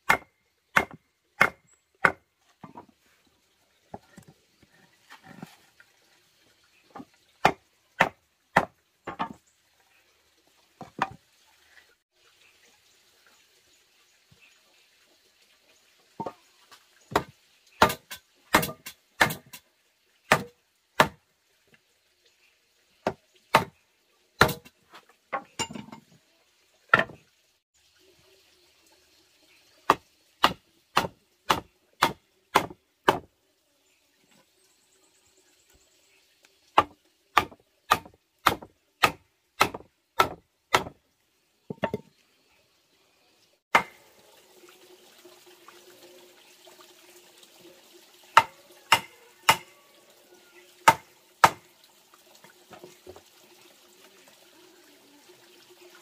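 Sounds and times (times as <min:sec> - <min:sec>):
hammer striking wood chisel: 0:36.8 - 0:40.9.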